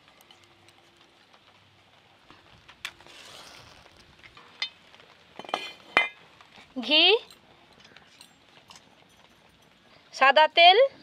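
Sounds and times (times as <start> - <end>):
metal clinks with ringing: 8.1 - 9.9.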